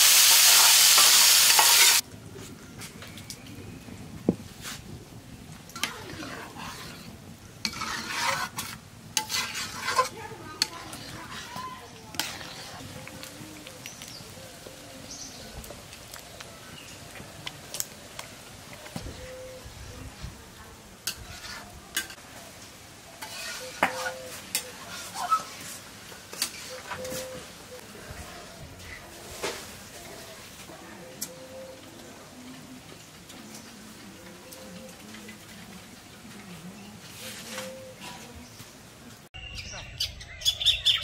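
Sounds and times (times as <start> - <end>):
sizzling: 0.0 - 2.0, 4.4 - 19.7, 20.8 - 27.8
metal spatula scraping pan: 5.8 - 13.2, 21.0 - 22.2, 23.2 - 27.3.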